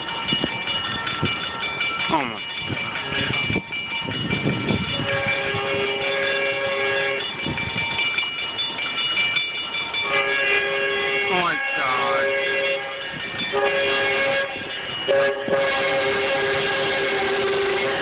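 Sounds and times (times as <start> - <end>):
crossing warning bell ringing: 0.0 - 18.0
train horn blasts: 4.8 - 7.3, 10.0 - 18.0.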